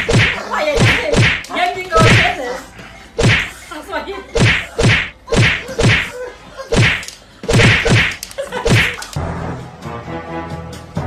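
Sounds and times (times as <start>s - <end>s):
sharp whacks: 0.0s - 2.3s, 3.2s - 3.5s, 4.4s - 6.1s, 6.7s - 9.0s.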